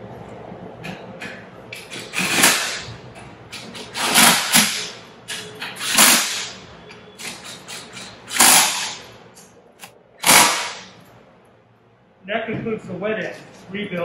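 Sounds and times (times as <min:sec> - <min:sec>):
impact driver bursts: 0:01.9 - 0:02.9, 0:03.6 - 0:05.0, 0:05.6 - 0:06.6, 0:07.2 - 0:09.1, 0:10.2 - 0:11.0.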